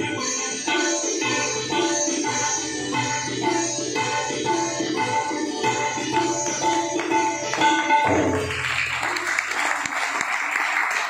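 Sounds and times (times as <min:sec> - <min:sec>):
sitar and tabla playing: 0:00.0 - 0:09.5
audience applause: 0:08.5 - 0:11.0.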